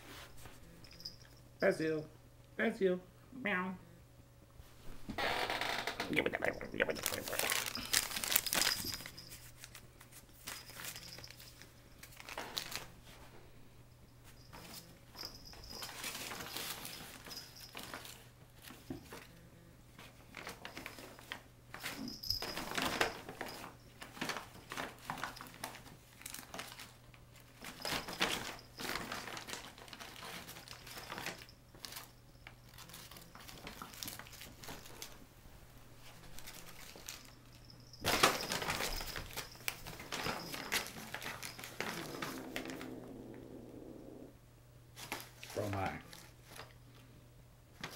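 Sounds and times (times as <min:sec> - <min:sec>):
paper bag crinkling and rustling: 0:06.8 - 0:13.0, 0:14.6 - 0:19.3, 0:20.2 - 0:35.2, 0:36.0 - 0:43.0.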